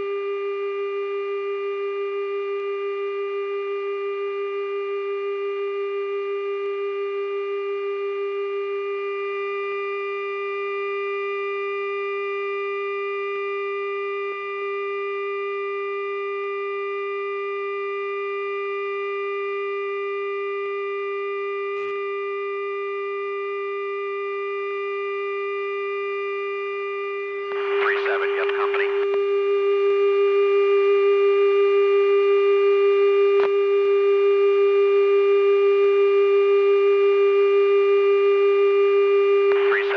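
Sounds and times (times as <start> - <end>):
steady electrical hum: 27.2 - 30.2, 39.4 - 39.9.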